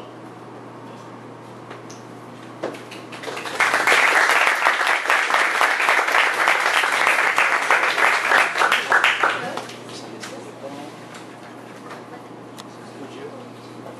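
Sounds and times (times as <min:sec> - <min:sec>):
audience applauding: 0:02.9 - 0:09.7.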